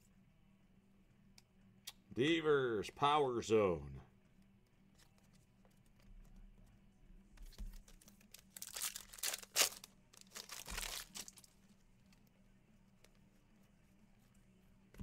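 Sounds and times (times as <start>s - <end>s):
foil wrapper tearing and crinkling: 8.3s - 11.5s.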